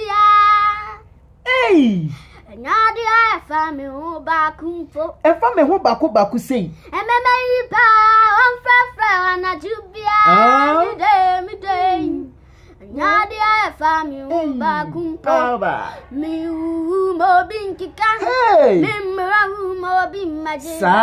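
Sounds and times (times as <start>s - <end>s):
young boy singing: 0.0s - 1.1s, 1.7s - 5.2s, 6.8s - 21.0s.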